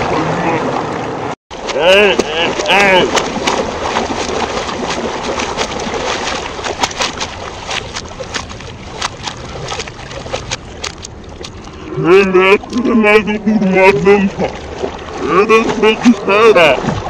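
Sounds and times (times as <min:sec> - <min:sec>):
water sloshing: 0:00.0 - 0:17.0
small sharp splashes: 0:01.5 - 0:11.9.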